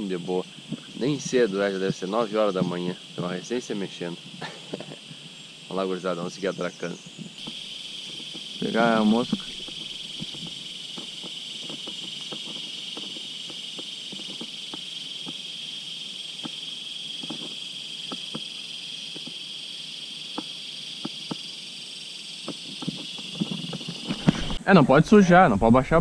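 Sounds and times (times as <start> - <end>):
insects buzzing: 0.0 - 26.0.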